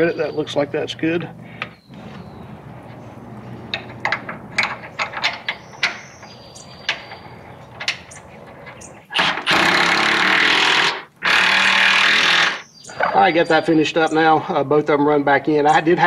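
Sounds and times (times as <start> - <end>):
cordless power tool running: 9.2 - 12.6.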